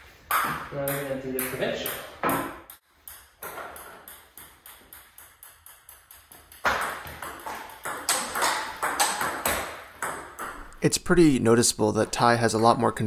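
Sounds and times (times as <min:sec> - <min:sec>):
paddle hits and table bounces: 0:00.3 - 0:10.7.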